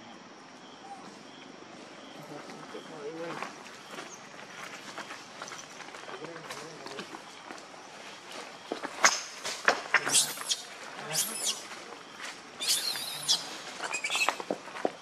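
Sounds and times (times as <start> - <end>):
infant monkey screaming: 10.0 - 11.7, 12.6 - 14.4.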